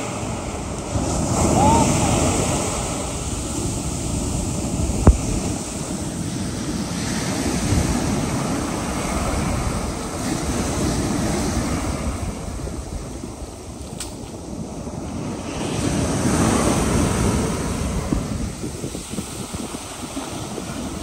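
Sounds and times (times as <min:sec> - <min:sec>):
ocean surf breaking on beach: 0:00.0 - 0:21.0.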